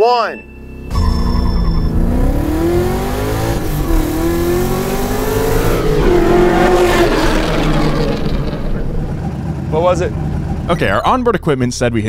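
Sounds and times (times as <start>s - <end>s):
car engine revving hard: 1.8s - 10.8s.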